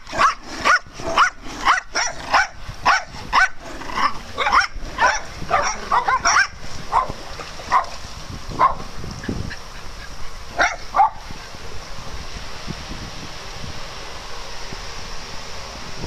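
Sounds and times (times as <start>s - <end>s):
small dogs barking: 0.0s - 8.0s, 8.6s - 8.9s, 9.5s - 11.5s.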